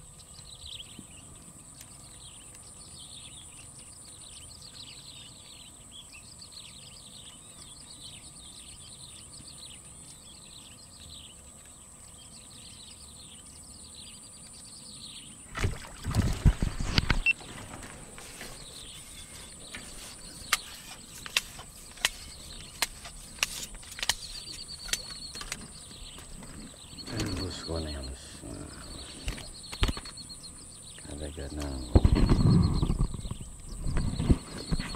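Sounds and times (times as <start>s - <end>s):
small birds chirping: 0.0s - 34.9s
splashing and fishing line noise: 15.4s - 27.5s
sharp clicks: 19.6s - 26.4s, 29.2s - 30.2s.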